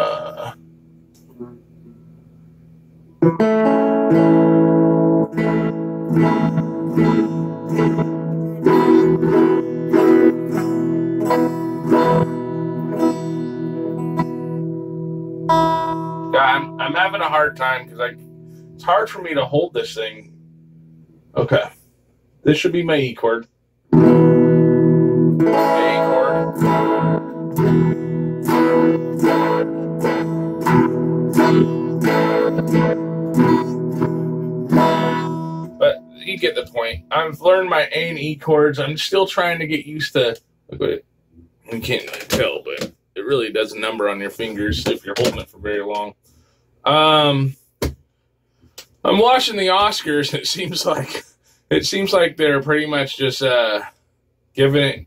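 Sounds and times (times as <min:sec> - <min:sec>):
electric guitar chords strummed: 0:03.2 - 0:21.6, 0:23.9 - 0:38.9.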